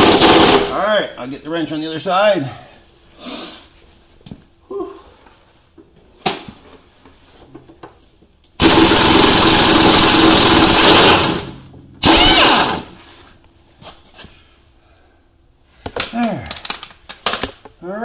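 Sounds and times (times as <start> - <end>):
impact wrench running: 0.0 - 0.7, 8.6 - 13.0.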